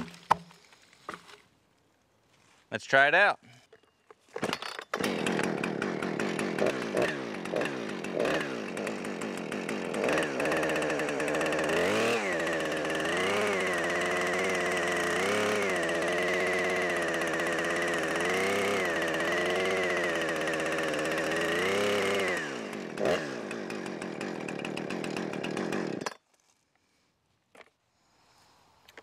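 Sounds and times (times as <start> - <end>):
chainsaw revving: 4.4 - 26.1.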